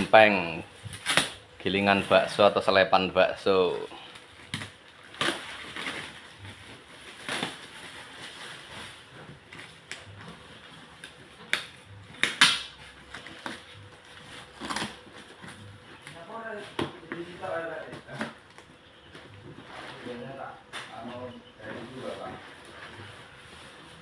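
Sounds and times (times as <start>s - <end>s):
plastic crinkling: 3.5s - 18.7s.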